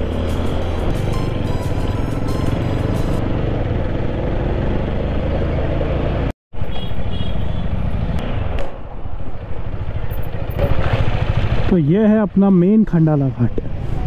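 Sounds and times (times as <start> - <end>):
motorcycle engine: 0.0 - 11.9.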